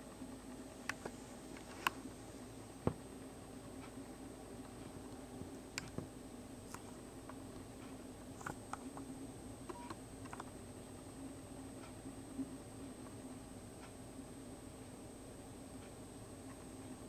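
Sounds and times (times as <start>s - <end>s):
steady low hum: 0.0s - 17.0s
small clicks and taps: 0.8s - 2.0s, 4.8s - 6.1s, 9.7s - 10.5s.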